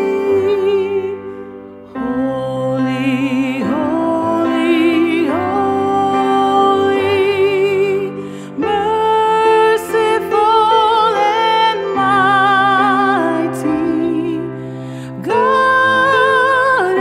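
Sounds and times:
slow tender music with vibrato: 0.0 - 17.0.

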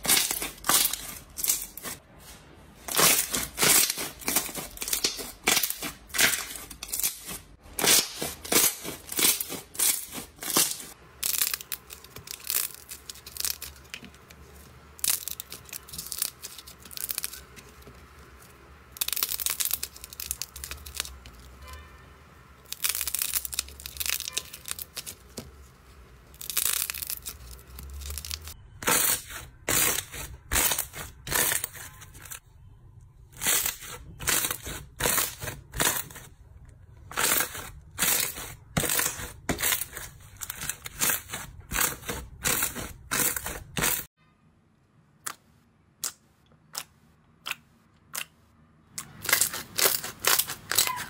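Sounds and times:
crackly slime stretching: 2.9 - 21.6, 22.6 - 32.4, 48.9 - 51.0.

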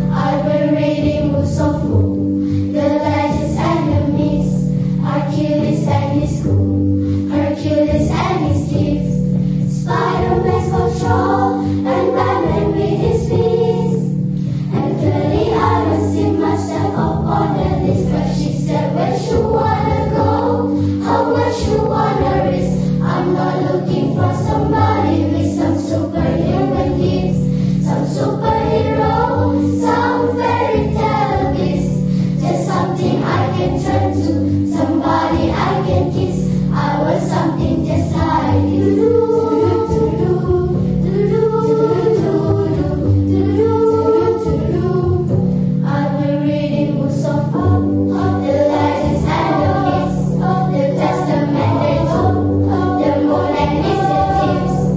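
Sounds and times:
girls choir singing: 0.0 - 54.9.

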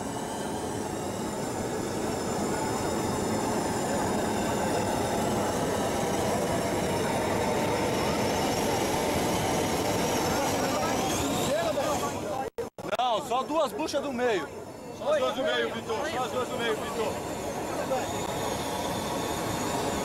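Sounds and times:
burning fuel rushing: 0.0 - 12.2.

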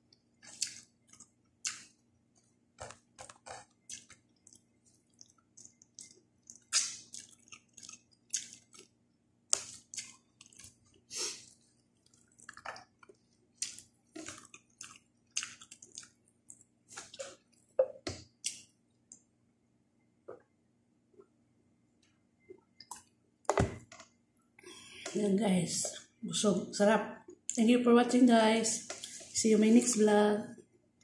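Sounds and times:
wet chewing and lip smacks: 0.4 - 8.9, 9.5 - 17.6.

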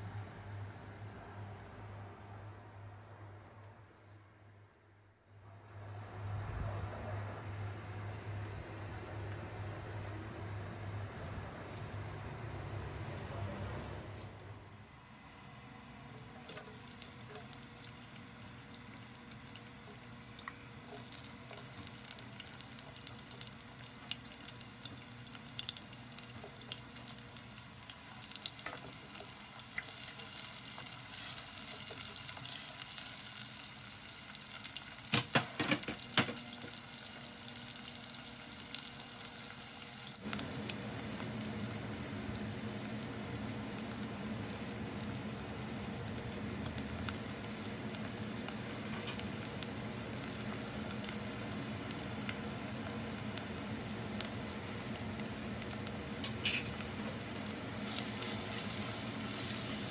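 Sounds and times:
onions sizzling in hot oil: 14.6 - 59.9.

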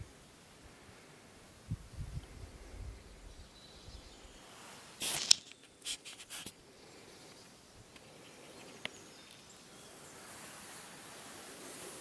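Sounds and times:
faint outdoor background: 0.0 - 12.0
scraping on stony ground: 4.7 - 6.6.

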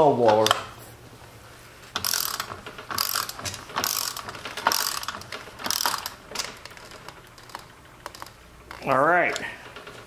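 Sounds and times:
ratchet wrench clicking: 2.0 - 9.5.

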